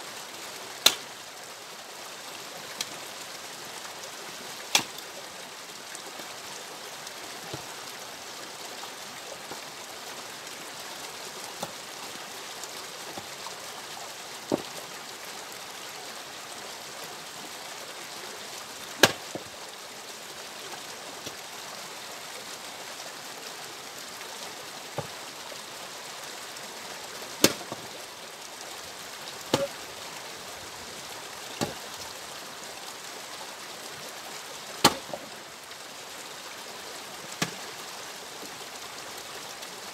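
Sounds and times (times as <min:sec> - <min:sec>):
axe splitting wood: 0:04.7 - 0:05.0, 0:19.0 - 0:19.4, 0:27.4 - 0:27.7, 0:29.5 - 0:29.8, 0:31.6 - 0:31.8, 0:34.8 - 0:35.2.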